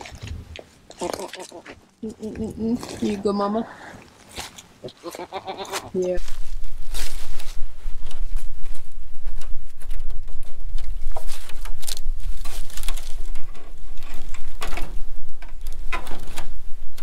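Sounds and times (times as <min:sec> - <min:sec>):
plastic panel rattling and scraping: 0:09.2 - 0:17.0.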